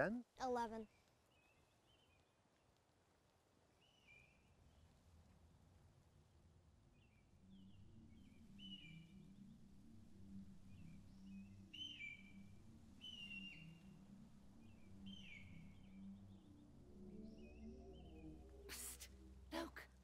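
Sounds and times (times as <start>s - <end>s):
whistled bird calls: 11.8s - 12.4s.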